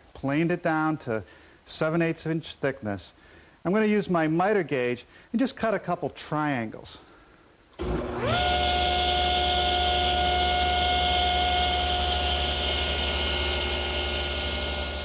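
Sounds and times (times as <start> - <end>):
saw blade cutting wood: 7.8 - 15.0
table saw running: 7.8 - 15.0.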